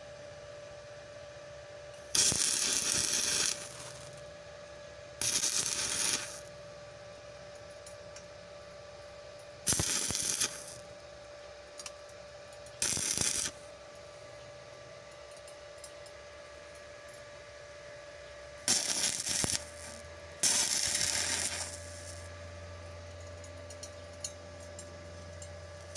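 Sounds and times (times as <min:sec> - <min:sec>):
welding arc crackle: 0:02.0 - 0:04.2, 0:05.2 - 0:06.6, 0:09.6 - 0:10.9, 0:12.8 - 0:13.7, 0:18.6 - 0:22.3.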